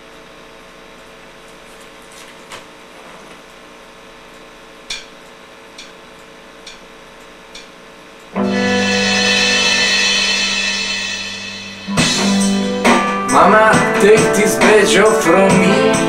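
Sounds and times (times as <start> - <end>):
guitar amplifier hum and hiss: 0.0 - 16.0
count-in ticks: 4.9 - 8.4.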